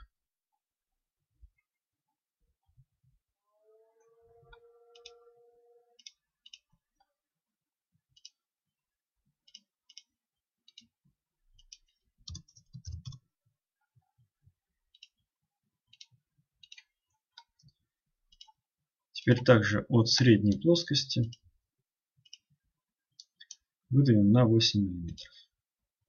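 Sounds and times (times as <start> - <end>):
computer mouse clicks: 5.0 - 5.2, 8.2 - 8.4, 15.9 - 18.6.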